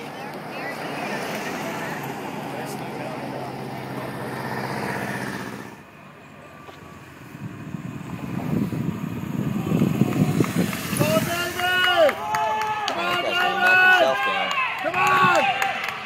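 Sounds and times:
pickup truck engine driving off: 0:00.0 - 0:11.9
motorcycle approaching: 0:00.0 - 0:12.0.

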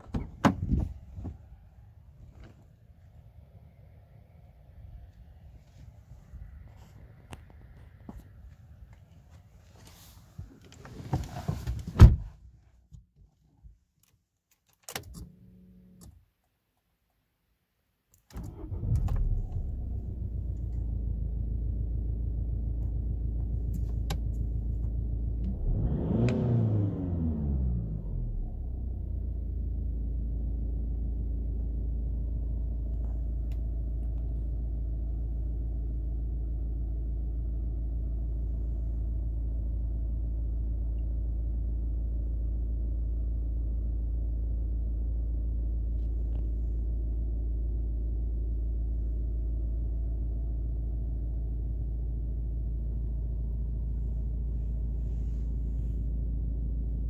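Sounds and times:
diesel engine starting and idling: 0:18.3 - 0:57.0
engine revving: 0:25.4 - 0:29.0.

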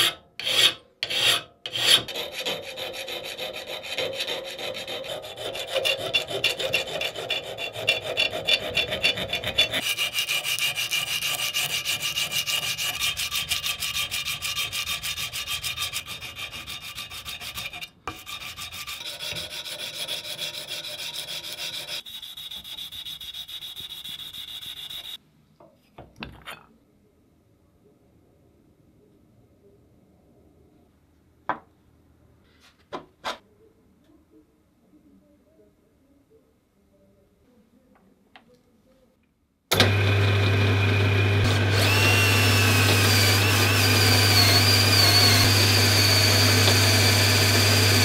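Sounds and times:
hand file rasping on metal: 0:00.0 - 0:25.2, 0:41.5 - 0:48.0.

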